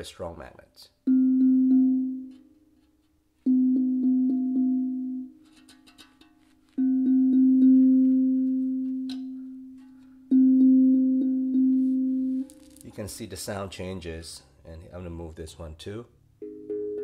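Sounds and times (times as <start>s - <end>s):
steel tongue drum note: 3.5s - 12.5s.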